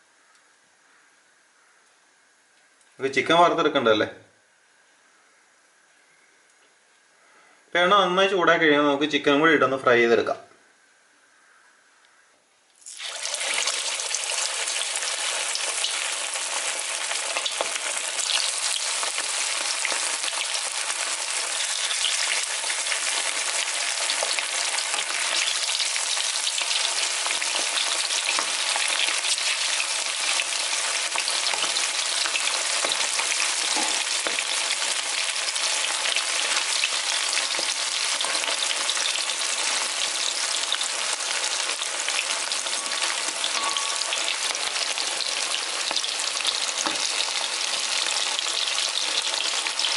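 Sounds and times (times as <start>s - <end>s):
chicken deep-frying in oil: 12.8s - 49.9s.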